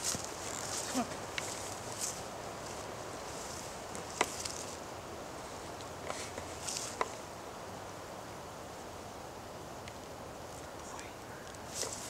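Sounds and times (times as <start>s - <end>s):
feet shifting on dry leaves: 0.0s - 4.8s, 5.4s - 7.1s, 11.7s - 12.0s
steady outdoor hiss: 0.0s - 12.0s.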